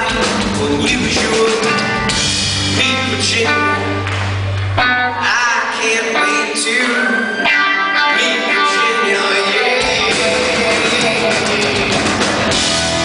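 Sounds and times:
drums: 0.0s - 5.1s, 8.7s - 13.0s
male lead vocal: 0.0s - 12.6s
guitar: 0.0s - 13.0s.

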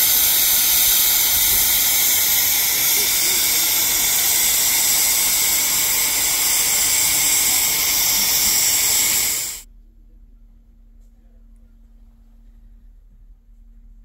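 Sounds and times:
steam hissing loudly: 0.0s - 9.7s
faint steady hum: 0.0s - 14.0s.

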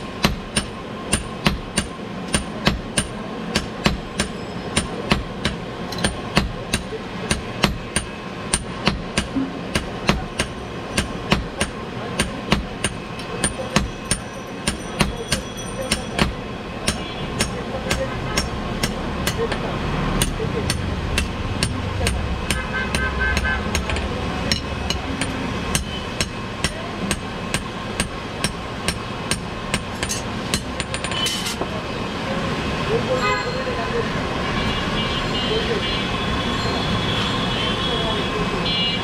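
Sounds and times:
hand hammer ringing on anvil: 0.2s - 19.6s.

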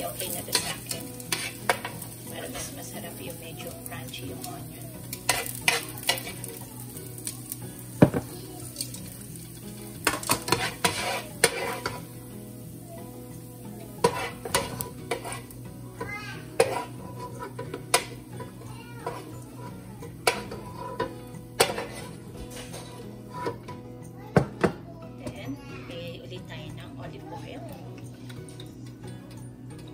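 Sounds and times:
tongs clacking on frying pan: 0.0s - 12.8s, 13.4s - 23.8s
oil sizzling in pan: 0.0s - 24.6s.

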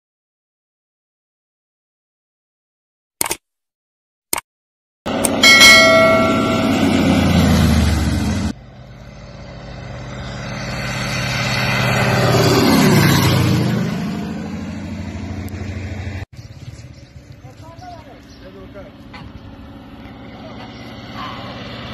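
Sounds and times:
airplane engine and propeller passing: 5.1s - 21.9s.

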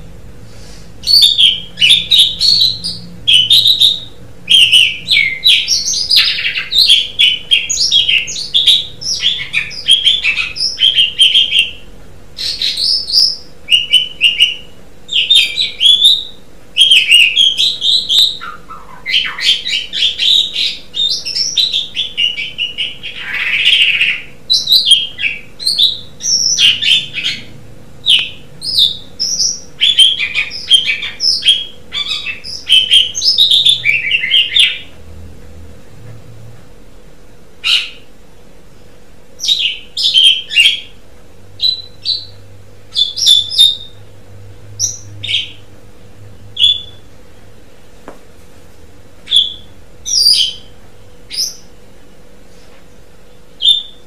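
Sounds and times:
starling singing: 1.0s - 34.9s, 37.6s - 38.1s, 39.4s - 41.0s, 41.6s - 44.1s, 44.8s - 45.7s, 46.6s - 47.1s, 49.2s - 50.7s, 51.3s - 51.7s, 53.6s - 54.0s.

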